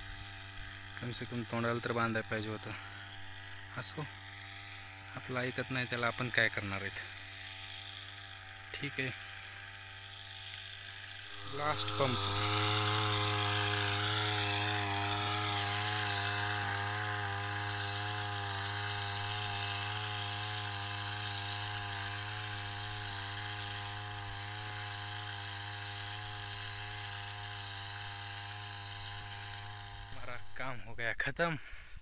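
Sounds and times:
power sprayer engine running: 0:00.0 - 0:30.9.

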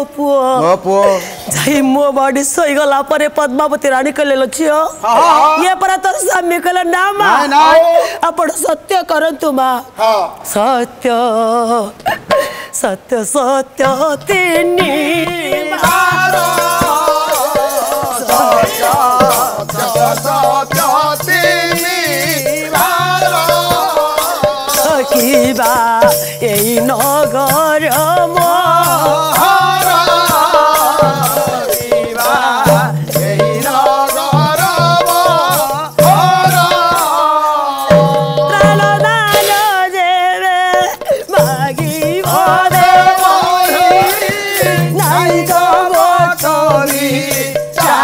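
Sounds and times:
person singing: 0:09.9 - 0:48.0
drum accompaniment: 0:13.8 - 0:48.0
rattling percussion beat: 0:13.8 - 0:48.0.

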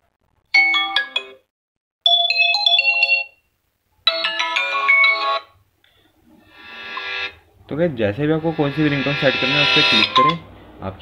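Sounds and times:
phone ringtone chimes: 0:08.5 - 0:10.4.

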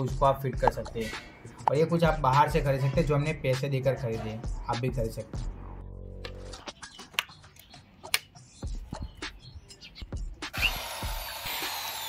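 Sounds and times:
hammer drill motor whining: 0:10.5 - 0:12.0.

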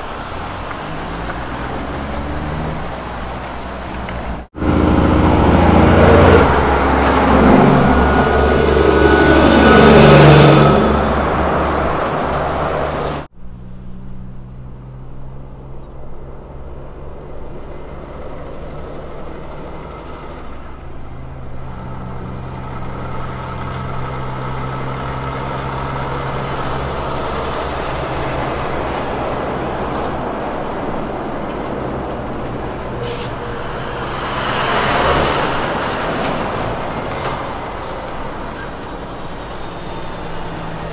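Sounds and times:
truck diesel engine pulling away: 0:00.0 - 0:40.9
truck engine approaching: 0:00.0 - 0:40.9.

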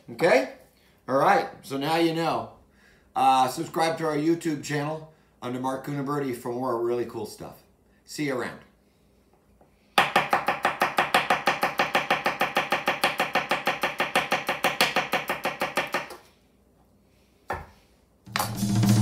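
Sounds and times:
knife chopping celery on wooden board: 0:10.0 - 0:16.2.

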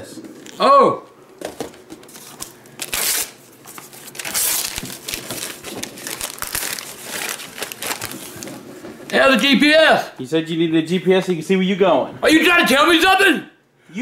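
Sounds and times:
paper crinkling: 0:01.9 - 0:08.9
wrapping paper tearing: 0:02.1 - 0:08.7.

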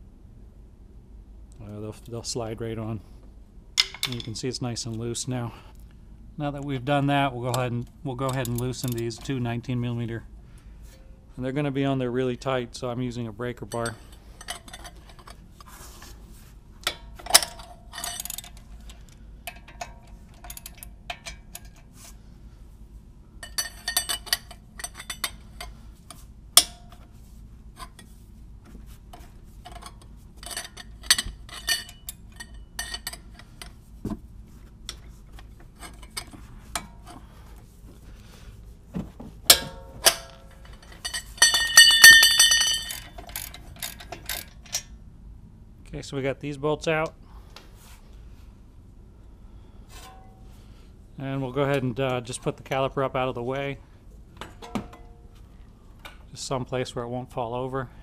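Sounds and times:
breaker bar and socket clinking: 0:03.8 - 0:04.4, 0:16.8 - 0:21.9, 0:23.4 - 0:27.1, 0:29.1 - 0:33.8, 0:39.5 - 0:45.0.

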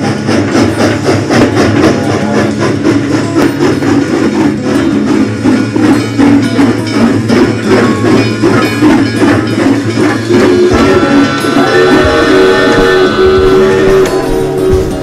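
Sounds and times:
background music beat: 0:00.3 - 0:15.0
held musical notes: 0:06.0 - 0:15.0.

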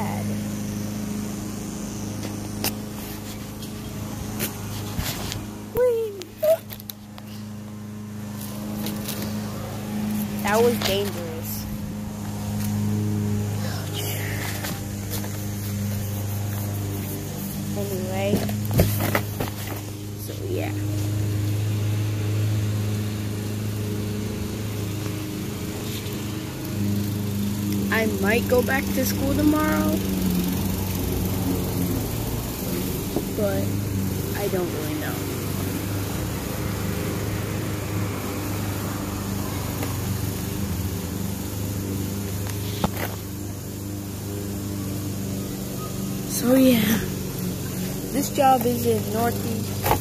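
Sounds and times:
engine humming steadily: 0:00.0 - 0:50.0.

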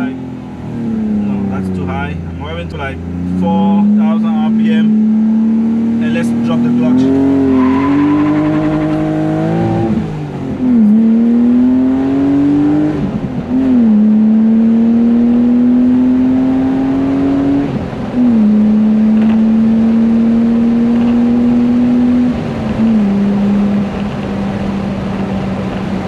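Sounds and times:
car engine accelerating: 0:00.0 - 0:26.0.

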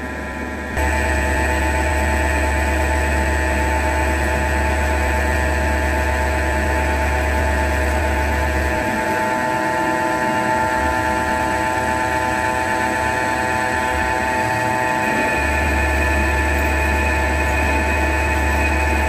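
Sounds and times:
lathe spindle whine: 0:00.0 - 0:19.0
low hum: 0:00.0 - 0:19.0.

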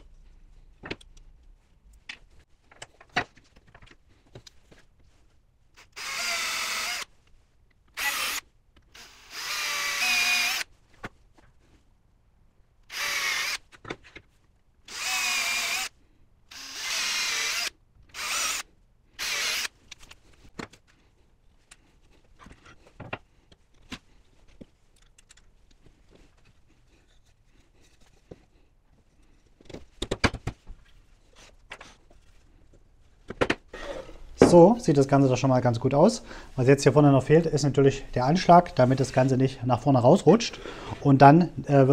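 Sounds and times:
electric drill drilling wood: 0:05.8 - 0:07.1, 0:08.0 - 0:10.7, 0:12.9 - 0:13.6, 0:14.9 - 0:15.9, 0:16.5 - 0:18.6, 0:19.2 - 0:19.7.

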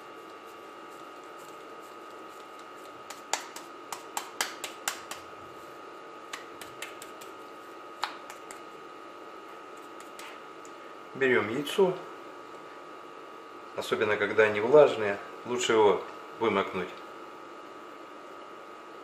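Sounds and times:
hands slapping meat patty: 0:01.0 - 0:05.6, 0:06.3 - 0:08.7, 0:09.8 - 0:10.4.

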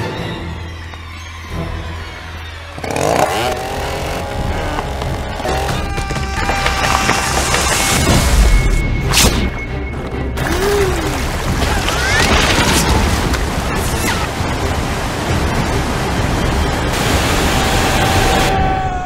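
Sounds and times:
music: 0:00.0 - 0:19.0
water rushing and splashing: 0:10.1 - 0:18.9.

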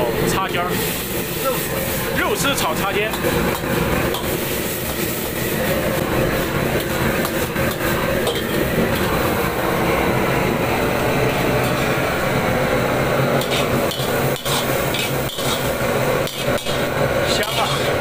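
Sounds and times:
gas burner roaring: 0:00.0 - 0:18.0
metal spatula scraping a wok: 0:13.4 - 0:18.0.

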